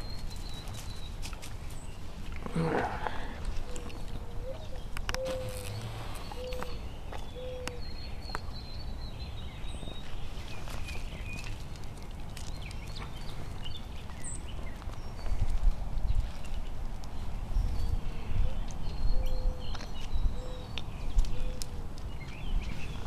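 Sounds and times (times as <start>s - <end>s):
bird cooing: 2.5s - 6.8s, 7.4s - 7.8s
wind rumble: 11.1s - 23.0s.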